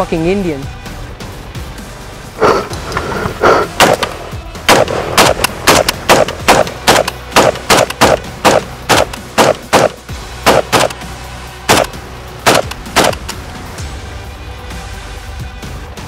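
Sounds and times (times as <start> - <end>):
rifle gunfire: 2.4 - 11.0, 11.7 - 13.4.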